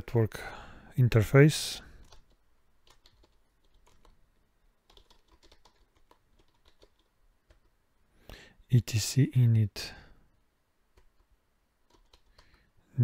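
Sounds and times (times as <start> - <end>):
typing on computer keyboard: 2.0 - 4.2, 4.8 - 7.7, 10.9 - 12.7.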